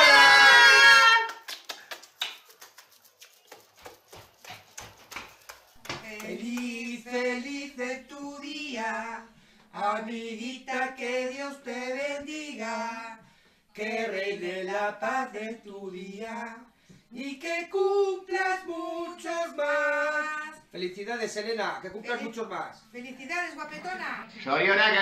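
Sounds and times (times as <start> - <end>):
man and woman singing: 6.0 - 20.6.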